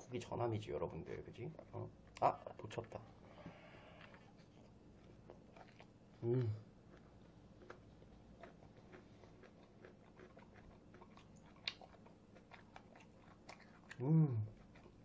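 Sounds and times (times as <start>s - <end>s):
chewing with wet mouth clicks: 4.0s - 6.0s, 6.9s - 15.0s
person humming mmm: 6.2s - 6.6s, 14.0s - 14.6s.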